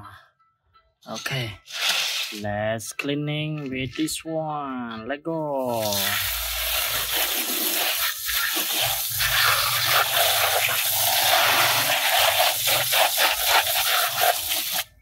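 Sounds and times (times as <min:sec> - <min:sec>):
hose spray hissing and splattering: 0:01.6 - 0:02.5, 0:05.6 - 0:15.0.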